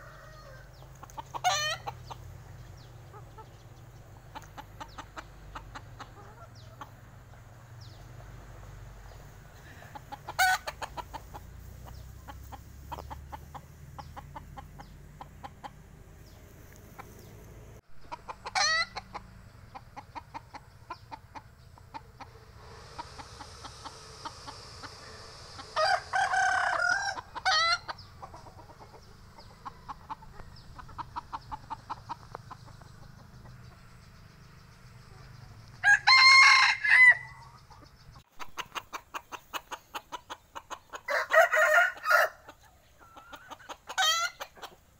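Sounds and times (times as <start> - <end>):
rooster crowing: 0.0 - 0.8, 23.0 - 27.9, 35.8 - 37.5, 41.1 - 42.5
quiet clucks: 0.7 - 8.5, 9.1 - 25.7, 27.2 - 35.8, 37.5 - 41.1, 42.5 - 44.9.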